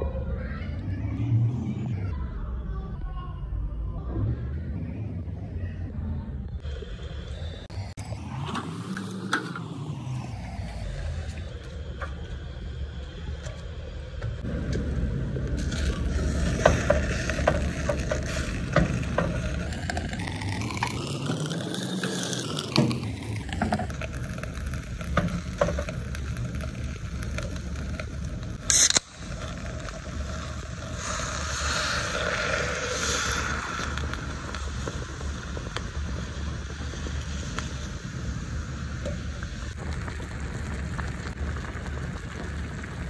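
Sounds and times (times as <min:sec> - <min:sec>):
low rumble: 0:00.0 - 0:43.0
liquid pouring and hissing: 0:14.9 - 0:43.0.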